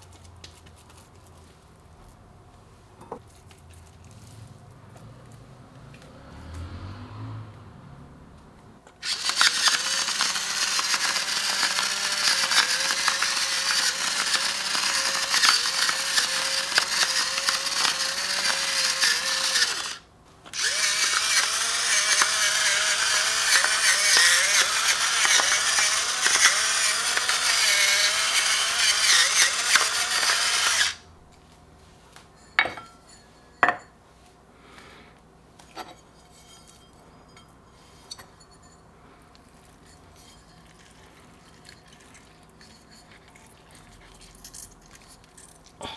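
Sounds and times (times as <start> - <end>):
electric pepper grinder running: 9.0 - 31.0.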